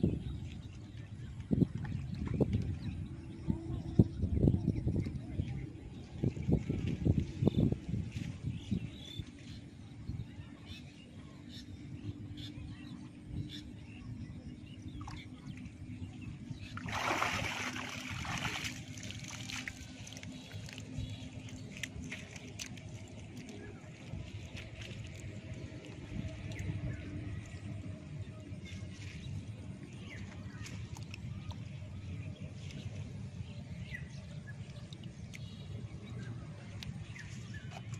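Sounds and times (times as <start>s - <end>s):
water splashing and sloshing: 0.0s - 3.6s, 14.6s - 37.9s
rush of splashing water: 16.6s - 25.4s.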